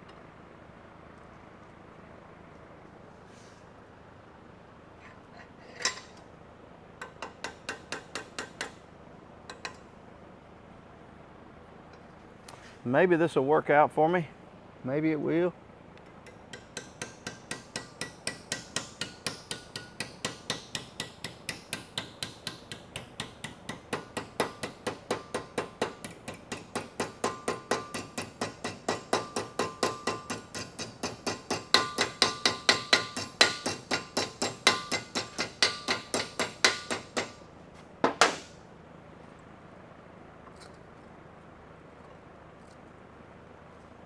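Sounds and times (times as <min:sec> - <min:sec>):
hammer on sheet metal: 0:07.0 - 0:08.8, 0:16.3 - 0:37.4.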